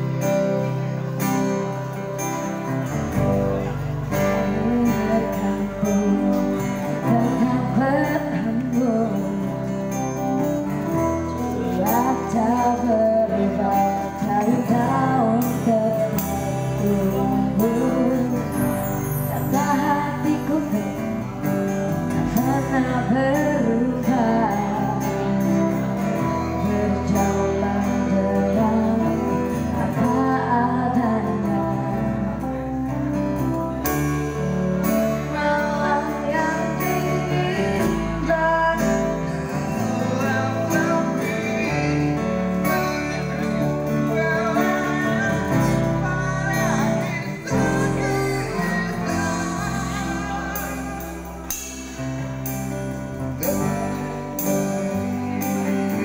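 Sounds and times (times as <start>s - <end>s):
acoustic guitar: 0.0s - 56.0s
bass line: 0.0s - 56.0s
keyboard: 0.0s - 56.0s
person singing: 0.0s - 56.0s.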